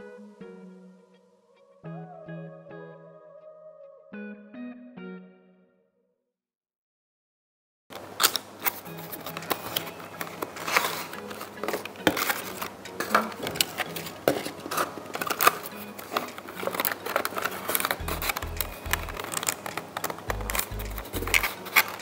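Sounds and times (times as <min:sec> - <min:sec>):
background music: 0:00.0 - 0:05.8, 0:08.6 - 0:22.0
plastic and cardboard packaging crinkling: 0:07.9 - 0:22.0.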